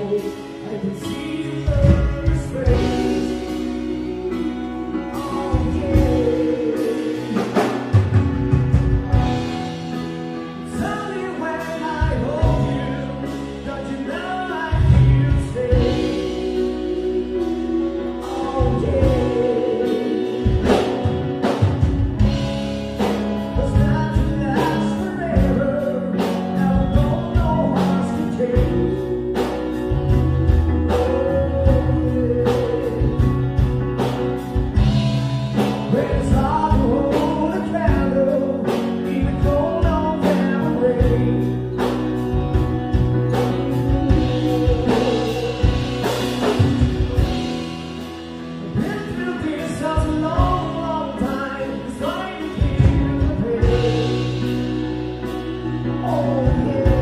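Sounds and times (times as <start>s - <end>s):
male and female voices singing: 0.0s - 8.6s, 10.7s - 21.6s, 23.0s - 35.0s, 35.6s - 47.5s, 48.7s - 57.0s
bass: 0.0s - 57.0s
drum kit steady beat: 0.0s - 57.0s
electric guitar: 0.0s - 57.0s
keyboards: 0.0s - 57.0s.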